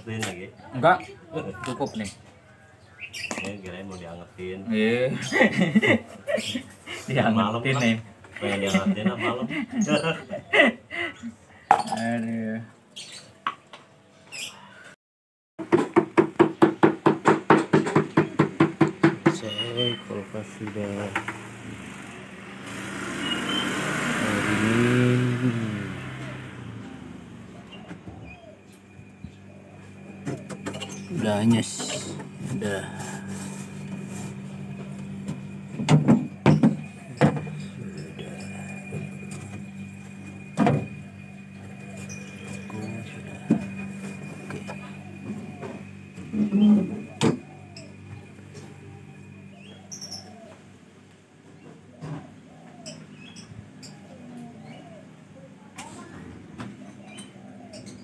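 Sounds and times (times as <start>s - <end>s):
refrigerator compressor humming: 16.2s - 51.4s.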